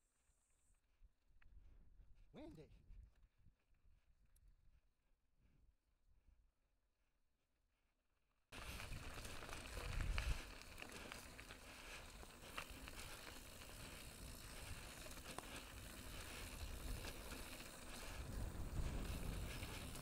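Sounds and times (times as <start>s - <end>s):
bike tyres crunching over stones: 8.6s - 20.0s
wind rumbling on microphone: 8.6s - 20.0s.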